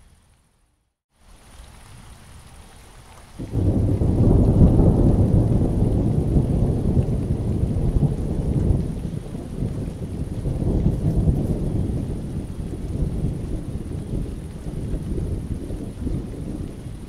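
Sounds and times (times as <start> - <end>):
rain falling: 1.1 - 17.0
thunder rumbling: 3.4 - 17.0.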